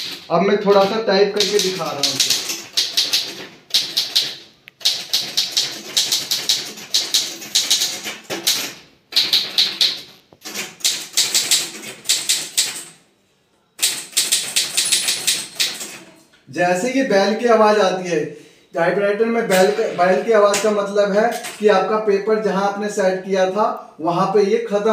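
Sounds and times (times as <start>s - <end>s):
manual typewriter typing: 0.0s - 13.0s, 13.8s - 16.2s, 19.4s - 21.9s
typewriter margin bell ding: 14.4s - 16.0s.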